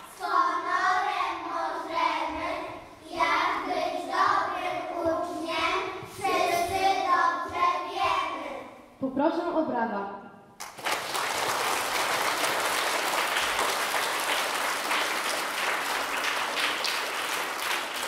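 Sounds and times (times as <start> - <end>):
children singing: 0.0 - 8.7.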